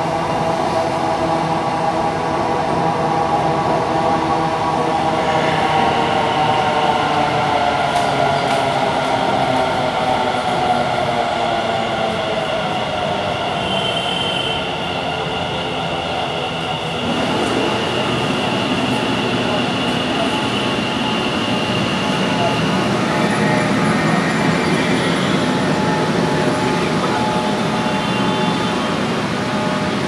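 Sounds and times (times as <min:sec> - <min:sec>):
train wheel squeal: 0:12.5 - 0:30.0.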